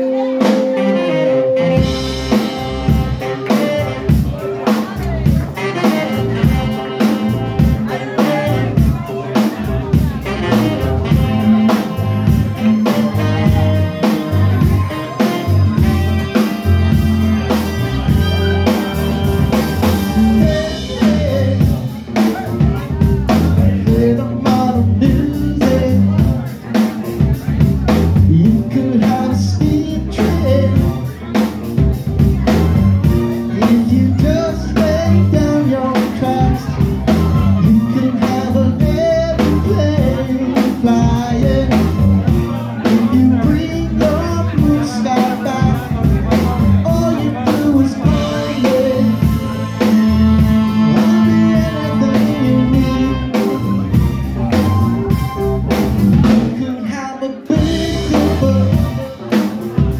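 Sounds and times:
lead singer singing: 0:00.0 - 0:31.5, 0:32.4 - 0:54.8, 0:56.1 - 0:59.9
live rock band playing: 0:00.0 - 0:59.9.

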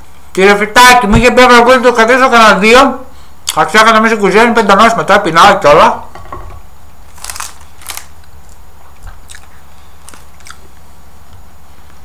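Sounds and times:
low steady hum: 0:00.0 - 0:12.0
person chewing crunchy food: 0:07.1 - 0:10.8.

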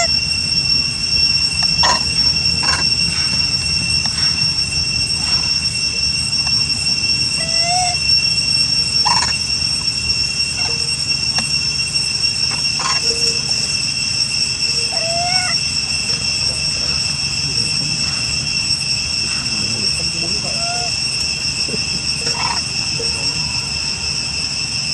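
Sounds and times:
low outdoor rumble: 0:00.0 - 0:24.6
insects droning: 0:00.0 - 0:24.9
short rising animal calls: 0:07.4 - 0:08.0, 0:20.4 - 0:20.9.

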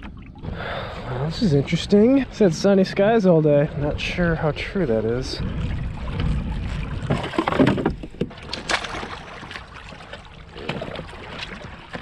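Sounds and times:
water sloshing against kayak hull: 0:00.0 - 0:12.0
knocks and rustles: 0:07.0 - 0:09.2.

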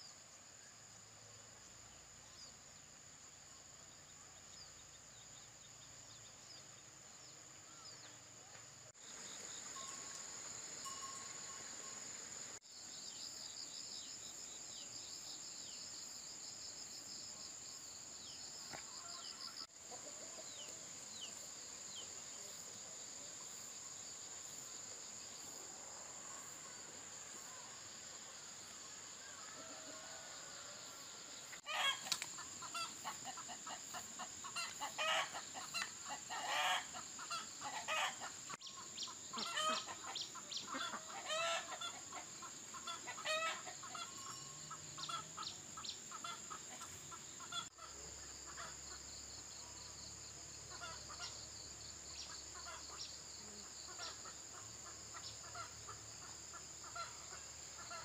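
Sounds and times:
insects droning: 0:00.0 - 0:58.0
chickens clucking: 0:31.6 - 0:47.9.

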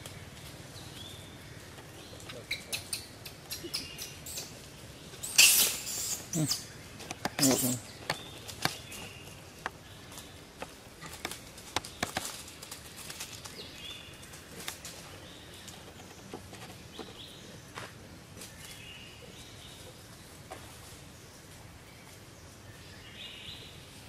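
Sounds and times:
steps on dry leaves: 0:07.4 - 0:15.2.

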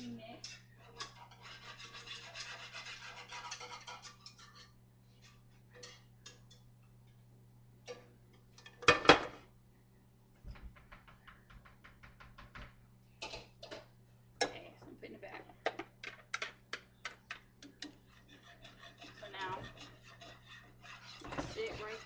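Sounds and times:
scraping through a strainer: 0:00.4 - 0:06.0, 0:17.9 - 0:22.0.

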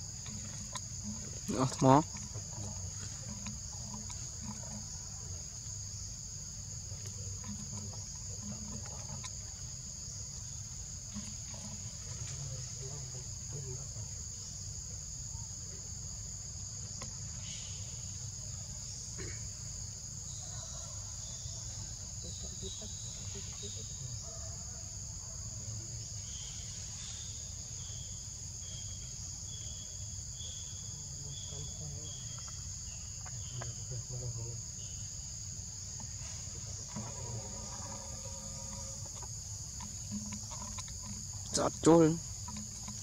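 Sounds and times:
insects chirping: 0:00.0 - 0:43.0
faint ticks: 0:36.0 - 0:43.0.

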